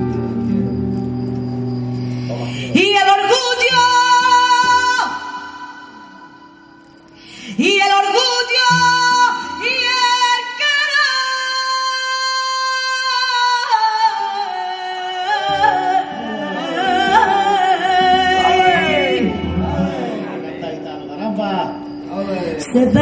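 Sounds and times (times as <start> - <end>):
flamenco guitar: 0.0 - 6.4, 12.6 - 20.8
woman singing flamenco: 2.6 - 5.9, 7.5 - 19.6.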